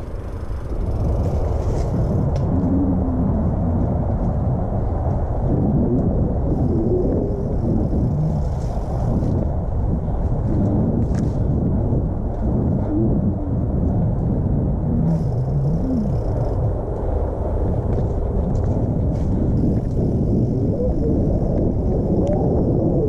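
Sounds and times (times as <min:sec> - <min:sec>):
bike clicks and rattles: 0:00.0 - 0:02.7, 0:07.4 - 0:12.6, 0:13.8 - 0:20.6
bike tyres rumbling on dirt: 0:00.0 - 0:23.0
wind on microphone: 0:00.0 - 0:23.0.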